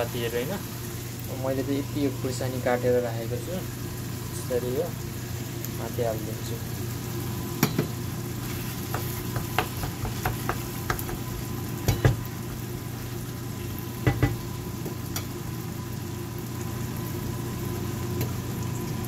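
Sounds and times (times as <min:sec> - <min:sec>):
curry sizzling in a pan: 0:00.0 - 0:19.0
spatula scraping and knocking pan: 0:07.7 - 0:12.3.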